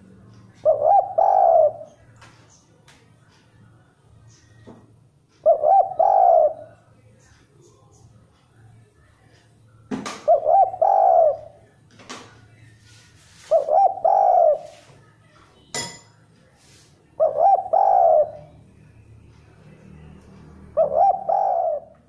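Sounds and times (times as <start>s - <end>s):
dove cooing: 0.0s - 2.0s, 5.4s - 6.7s, 10.2s - 11.6s, 13.4s - 14.9s, 17.2s - 18.5s, 20.7s - 22.0s.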